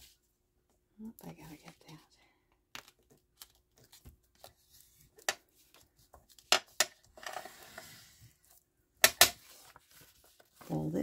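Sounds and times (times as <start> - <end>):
paper rubbing and sliding: 9.4 - 11.0.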